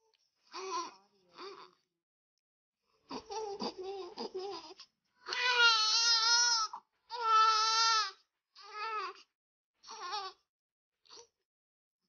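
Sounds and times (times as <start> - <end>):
baby crying: 3.3 - 9.2, 9.9 - 10.4.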